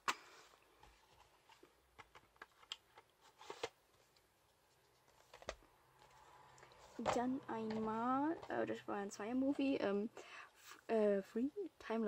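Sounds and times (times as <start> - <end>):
plastic cases clicking and tapping: 1.5 - 3.8, 5.1 - 5.6, 6.6 - 8.6.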